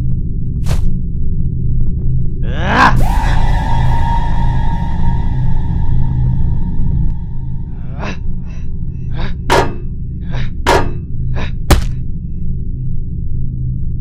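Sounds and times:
low pulsing film score drone: 0:00.0 - 0:14.0.

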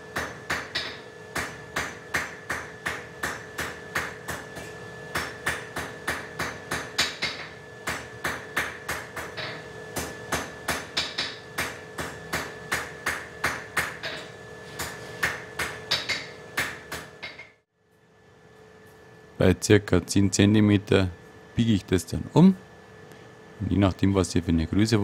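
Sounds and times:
hammer striking iron on anvil: 0:00.1 - 0:17.6.

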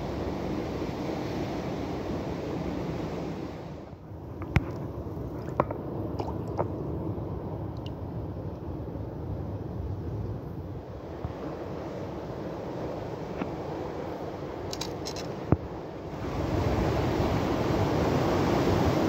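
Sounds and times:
sea surf: 0:00.0 - 0:19.0
wind: 0:00.0 - 0:19.0
water dripping in rock pool: 0:04.5 - 0:06.8, 0:07.7 - 0:08.6.

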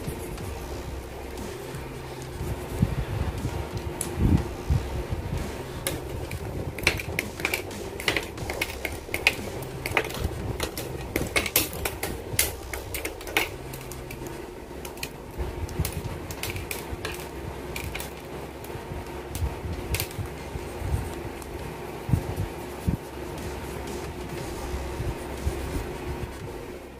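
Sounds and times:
faint low hum: 0:00.0 - 0:26.9
plastic parts clicking and snapping: 0:05.8 - 0:20.4.

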